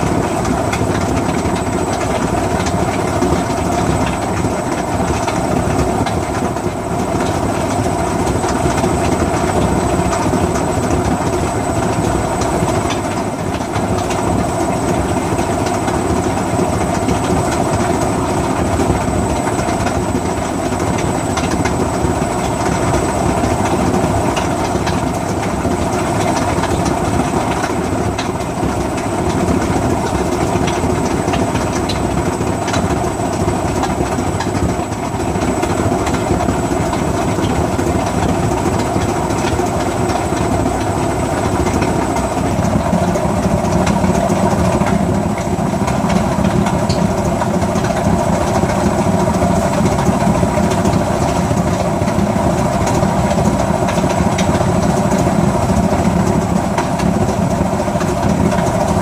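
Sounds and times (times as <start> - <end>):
washing machine drum rumbling: 0.0 - 59.0.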